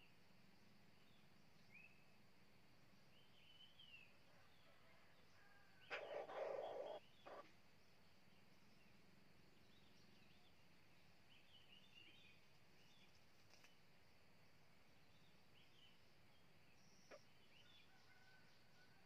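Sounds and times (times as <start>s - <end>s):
small birds chirping: 0.0s - 2.2s, 3.0s - 18.9s
rooster crowing: 4.3s - 7.0s, 17.8s - 19.0s.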